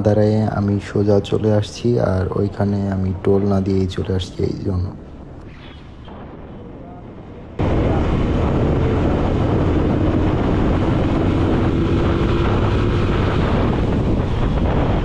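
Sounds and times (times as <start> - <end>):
wind rush on microphone: 0.1 - 15.0
motorcycle engine accelerating: 7.6 - 15.0.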